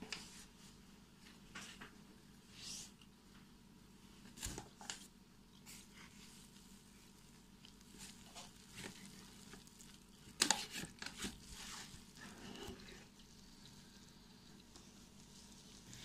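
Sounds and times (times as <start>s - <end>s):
dough squishing in a bowl: 4.2s - 16.0s.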